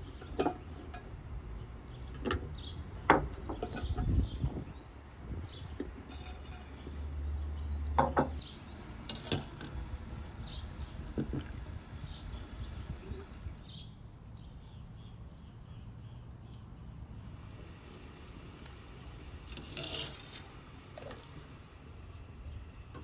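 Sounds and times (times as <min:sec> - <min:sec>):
small birds chirping: 0:10.4 - 0:11.1, 0:11.9 - 0:19.6.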